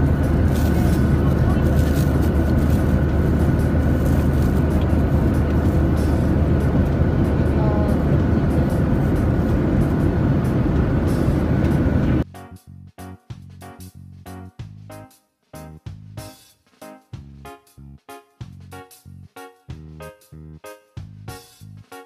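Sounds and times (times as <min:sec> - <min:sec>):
airplane cabin drone: 0:00.0 - 0:12.2
plastic wrap crinkling: 0:00.5 - 0:02.9.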